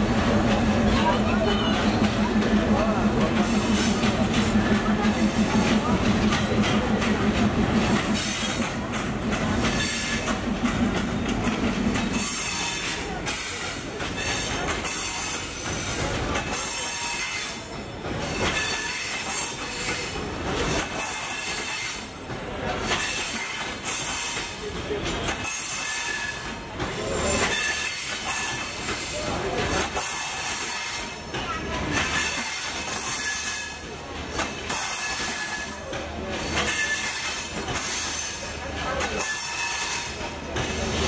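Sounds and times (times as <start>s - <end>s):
diesel locomotive engine throbbing: 0.0s - 25.5s
train wheels squealing: 9.7s - 10.4s, 12.0s - 22.1s, 22.8s - 24.7s, 25.3s - 33.9s, 34.6s - 41.0s.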